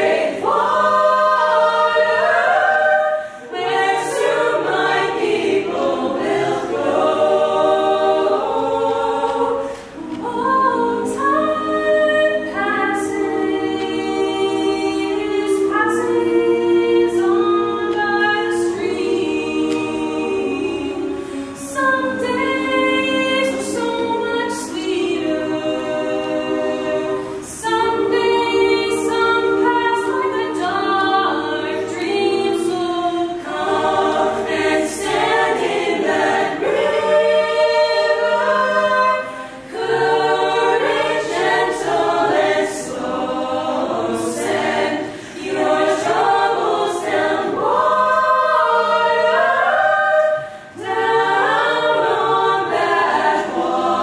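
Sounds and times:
choir singing a cappella: 0:00.0 - 0:54.0
singers breathing: 0:03.1 - 0:03.6, 0:45.0 - 0:45.5, 0:50.4 - 0:50.8.

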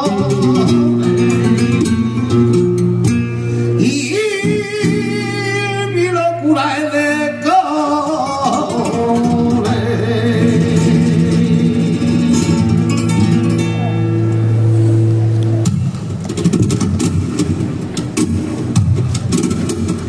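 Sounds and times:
man singing flamenco: 0:00.0 - 0:14.3
acoustic flamenco guitar: 0:00.0 - 0:20.0.

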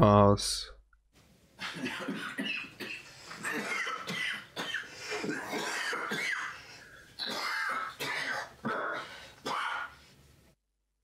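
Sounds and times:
man coughing: 0:01.6 - 0:10.0.

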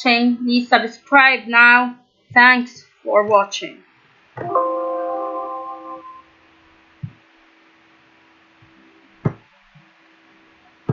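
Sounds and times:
computer alert chime: 0:04.4 - 0:06.3.

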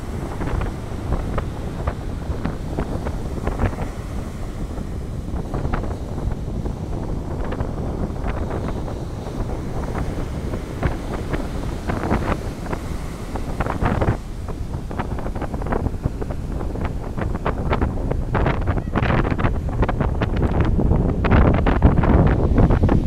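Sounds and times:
waves breaking on a beach: 0:00.0 - 0:23.0
wind buffeting the microphone: 0:00.0 - 0:23.0.

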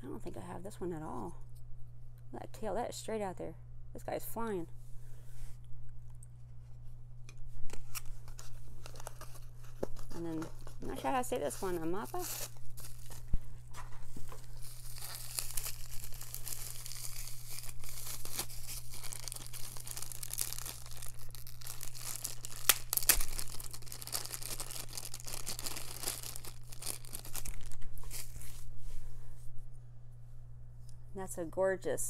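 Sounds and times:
plastic wrap crinkling: 0:07.7 - 0:28.7.

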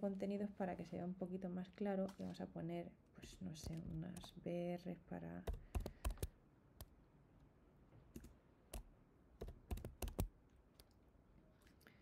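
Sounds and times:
computer keyboard keystrokes: 0:05.4 - 0:06.9, 0:08.2 - 0:10.9.

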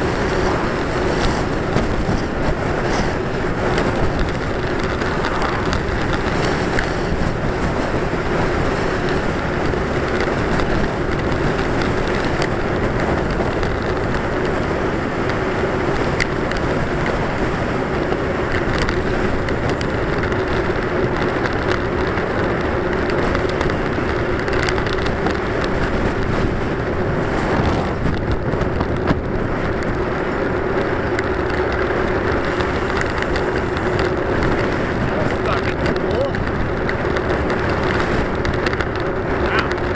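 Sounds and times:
rolling road noise: 0:00.0 - 0:39.9
wind rush on microphone: 0:00.0 - 0:39.9
steady low hum: 0:32.4 - 0:34.3.

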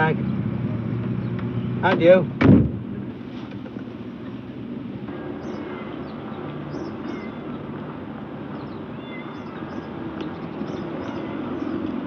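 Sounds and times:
low outdoor rumble: 0:00.0 - 0:12.0
faint high chirps: 0:05.2 - 0:07.6.

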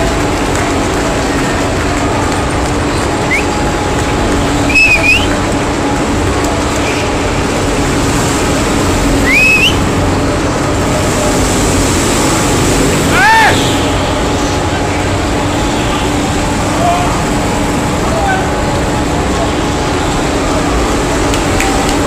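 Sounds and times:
spectators clapping: 0:00.0 - 0:12.0, 0:14.7 - 0:22.0
go-kart engines running: 0:00.0 - 0:22.0
short rising whistles: 0:04.7 - 0:05.3, 0:09.2 - 0:09.8.

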